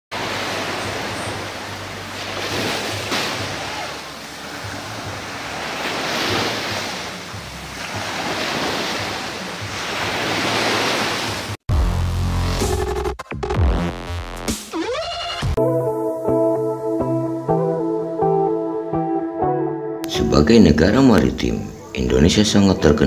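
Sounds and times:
sea waves on beach: 0.1s - 11.6s
loud electronic music: 11.7s - 20.0s.

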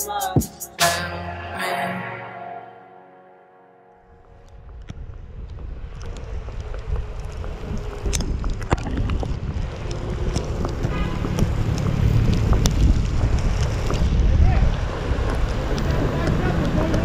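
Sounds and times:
wind buffeting microphone: 4.2s - 17.0s.

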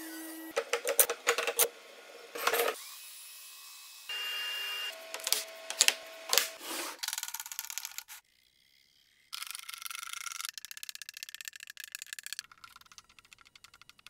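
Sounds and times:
wooden blocks clacking: 9.5s - 14.0s.

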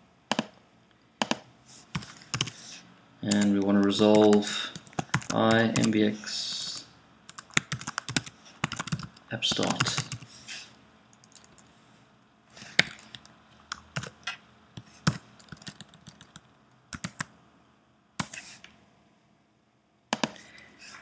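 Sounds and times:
computer keyboard keystrokes: 1.2s - 2.5s, 3.3s - 6.0s, 7.3s - 10.3s, 11.1s - 11.7s, 12.8s - 14.2s, 15.0s - 17.3s.

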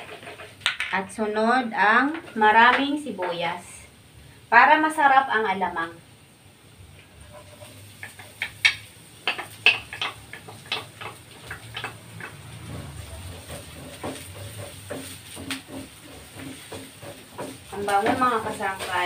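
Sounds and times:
garlic sauteing: 0.0s - 19.0s
utensil scraping and tapping bowl: 2.1s - 3.4s, 7.2s - 19.0s.

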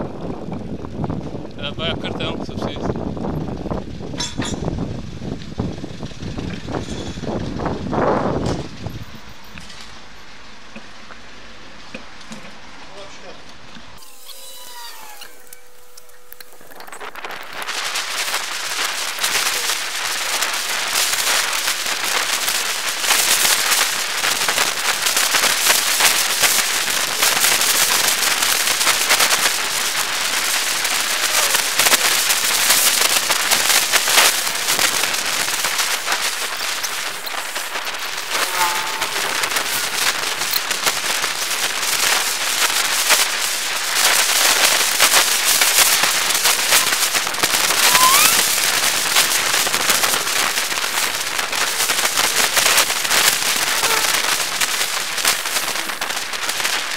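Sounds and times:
wind rush on microphone: 0.0s - 9.7s
camera rattling over road: 15.6s - 56.9s.

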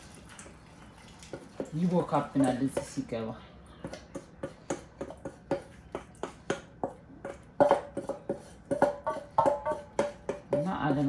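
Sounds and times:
wooden spoon scraping metal bowl: 4.0s - 11.0s.

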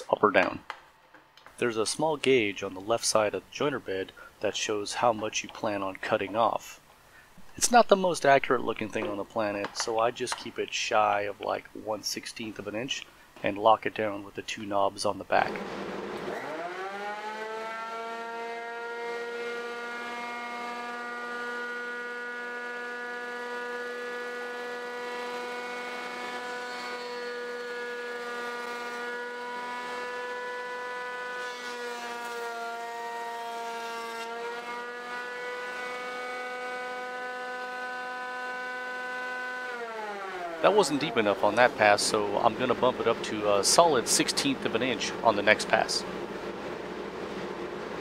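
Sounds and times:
jointer planer whining: 15.5s - 48.0s.

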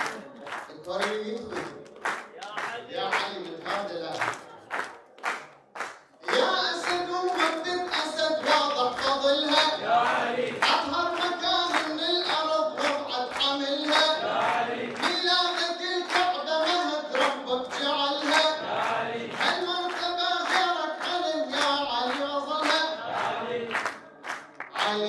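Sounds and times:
hands clapping in time: 0.0s - 25.0s
man singing into a microphone: 6.2s - 9.8s, 10.5s - 14.2s, 15.0s - 18.6s, 19.4s - 23.0s, 24.7s - 25.0s.

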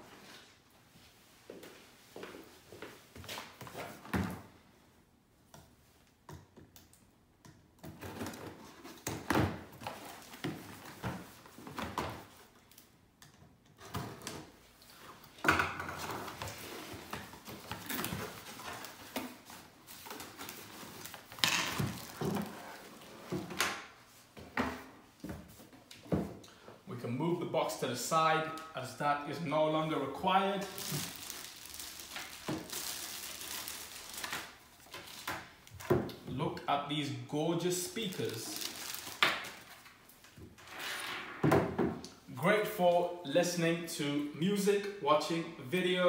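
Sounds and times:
rustling cardboard and plastic: 7.9s - 12.9s, 13.8s - 26.4s, 30.4s - 36.2s, 38.0s - 40.7s.

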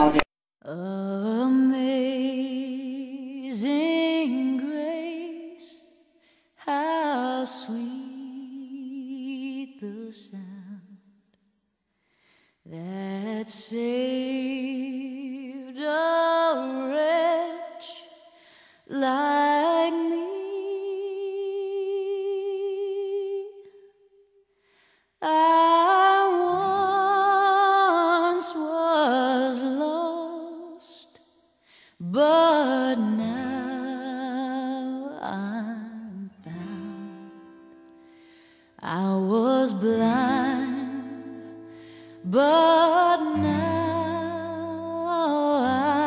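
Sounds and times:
solo voice singing unaccompanied: 42.2s - 46.0s.

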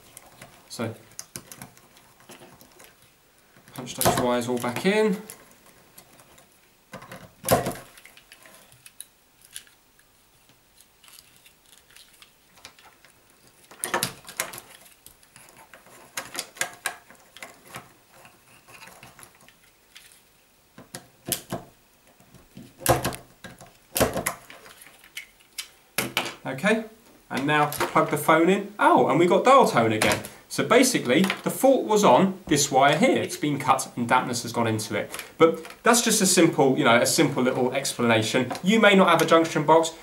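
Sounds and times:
plastic handling noises: 0.0s - 28.4s, 29.2s - 40.0s.

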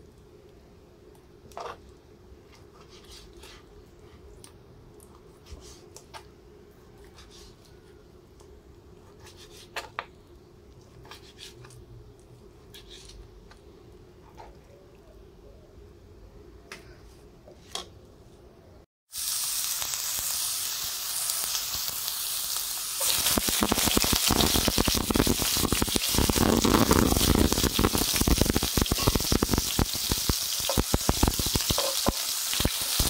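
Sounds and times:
faint steady hum: 0.0s - 18.9s.

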